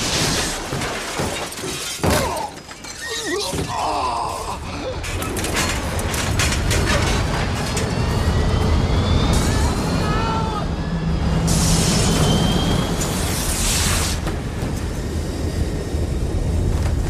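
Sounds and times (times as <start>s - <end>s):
glass crashing and shattering: 0.0s - 3.7s
man groaning in pain: 3.3s - 4.8s
low jet rumble: 4.6s - 17.0s.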